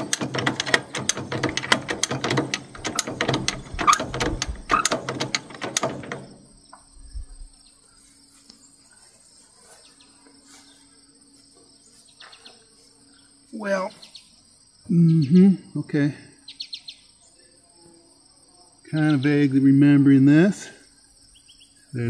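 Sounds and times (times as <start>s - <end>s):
rapid ratcheting metal clicks: 0.0s - 6.4s
crickets chirring: 0.0s - 22.0s.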